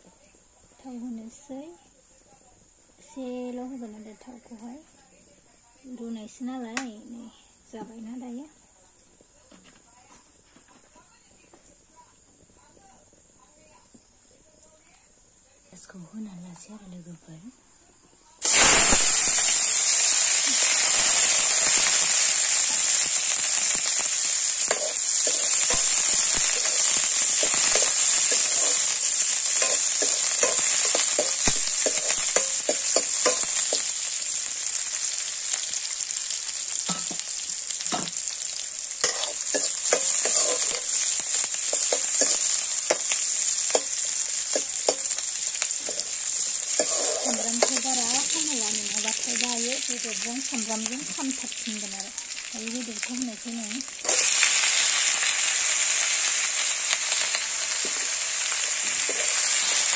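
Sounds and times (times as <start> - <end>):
onions sizzling in hot oil: 17.9 - 59.9
metal spoon scraping pan: 23.6 - 34.0, 39.0 - 45.2, 45.8 - 48.2, 54.0 - 54.4, 58.8 - 59.8.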